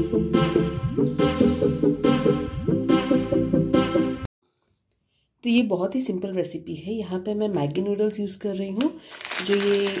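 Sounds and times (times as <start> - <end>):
intro music with steady beat: 0.0 - 4.3.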